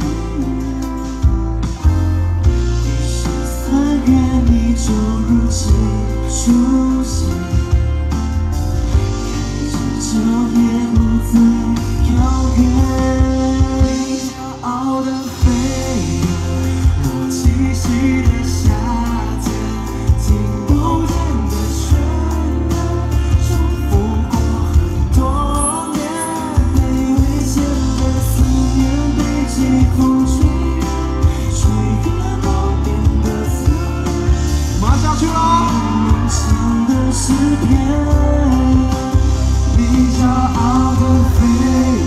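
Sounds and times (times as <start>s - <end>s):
bass line: 0.0s - 42.0s
drum beats: 0.0s - 42.0s
live pop band: 0.0s - 42.0s
male group vocals: 2.8s - 8.0s, 9.1s - 42.0s
person singing sustained notes: 17.3s - 42.0s.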